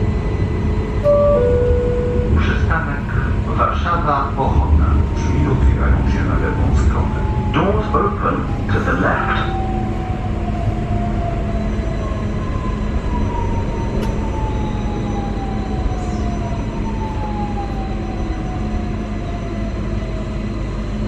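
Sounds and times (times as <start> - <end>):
train interior hum and rush: 0.0 - 21.0
thin high tone: 1.0 - 2.7
falling whines: 1.0 - 2.8.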